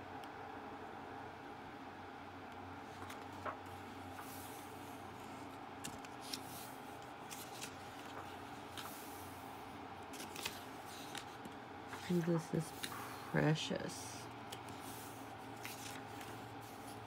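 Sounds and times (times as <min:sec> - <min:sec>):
faint steady hum: 0:00.0 - 0:17.0
magazine pages turning: 0:02.8 - 0:13.2, 0:14.4 - 0:17.0.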